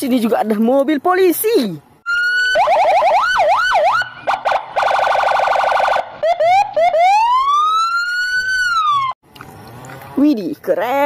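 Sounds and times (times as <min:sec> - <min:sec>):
police siren cycling tones: 0:02.0 - 0:09.2.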